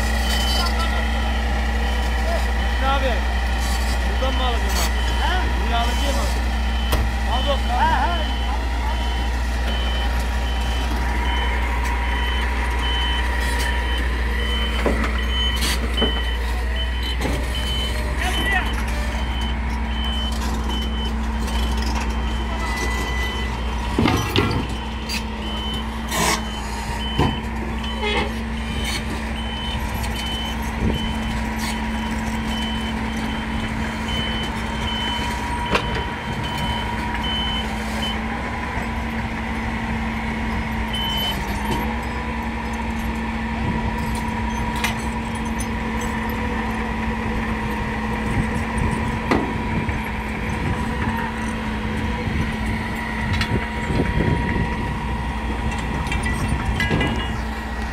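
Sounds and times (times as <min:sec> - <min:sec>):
motion alarm beeps: 0:40.9 - 0:41.4.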